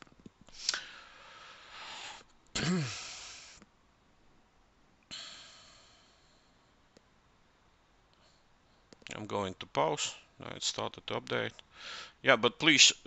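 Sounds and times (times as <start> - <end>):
man breathing close to microphone: 0.5 - 2.3, 2.9 - 3.6, 5.1 - 6.9, 11.7 - 12.2
man sighing: 2.6 - 3.6.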